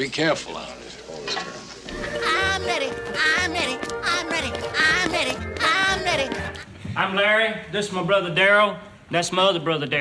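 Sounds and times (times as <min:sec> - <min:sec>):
cartoon music with bass beat: 0:02.0 - 0:06.6.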